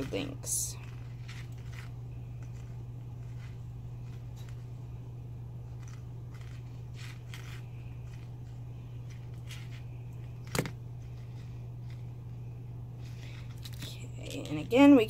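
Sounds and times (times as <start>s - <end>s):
wire clicks and scrapes: 0.0s - 4.7s, 5.7s - 8.4s
low hum: 0.0s - 15.0s.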